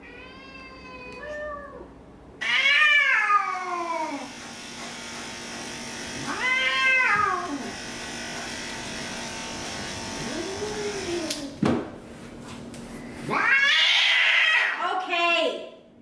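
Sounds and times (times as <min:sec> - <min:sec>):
cat meowing: 0:00.0 - 0:04.3, 0:06.3 - 0:07.7, 0:13.3 - 0:14.8
electric pet clippers humming: 0:03.6 - 0:11.6.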